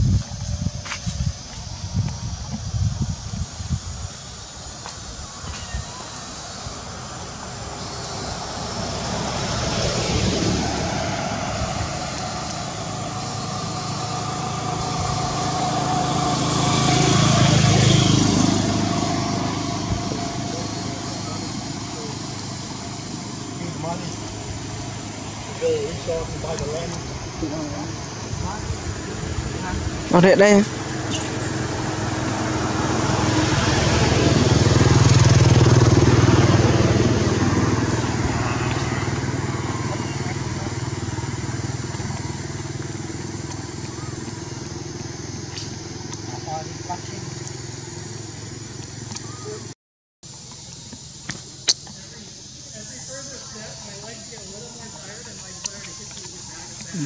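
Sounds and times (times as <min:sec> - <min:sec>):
vehicle passing by: 0:06.0 - 0:49.7.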